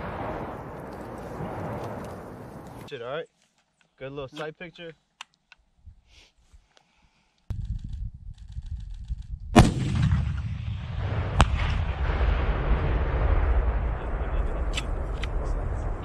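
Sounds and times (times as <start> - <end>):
wind rumbling on microphone: 7.5 - 16.0
launcher firing blast: 9.5 - 16.0.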